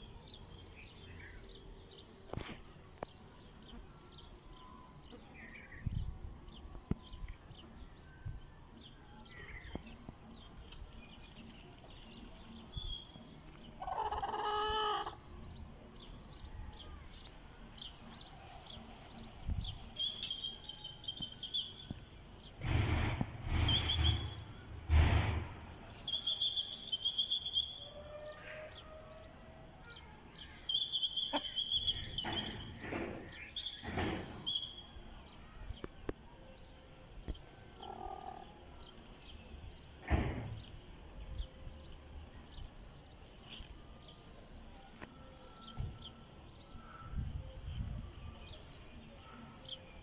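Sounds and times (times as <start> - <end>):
songbirds chirping and trilling: 0.0 - 50.0
chicken call: 13.8 - 15.2
loud rustling bursts: 22.4 - 26.0.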